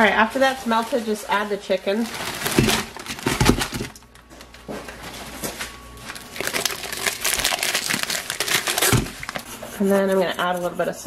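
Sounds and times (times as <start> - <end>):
plastic bag crinkling: 0.0 - 4.5, 6.0 - 9.6.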